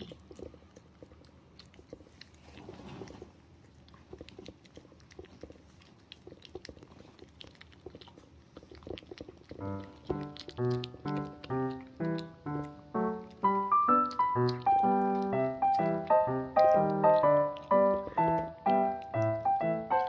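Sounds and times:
dog eating and crunching: 0:00.0 - 0:20.0
music: 0:10.7 - 0:20.0.

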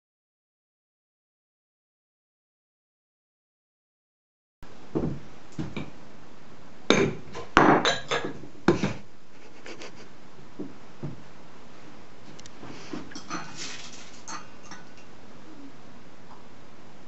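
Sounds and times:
glass and china clinking: 0:13.1 - 0:15.0.

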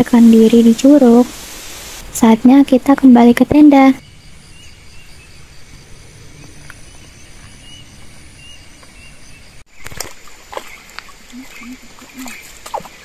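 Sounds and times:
insects buzzing in pulses: 0:00.0 - 0:13.0.

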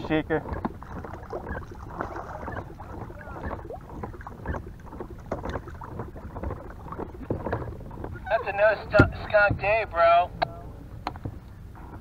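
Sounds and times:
fish splashing at water surface: 0:00.6 - 0:07.8.

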